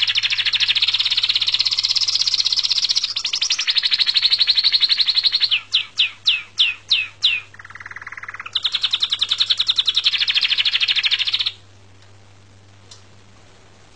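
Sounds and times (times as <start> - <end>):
canary singing trills: 0.0 - 11.6.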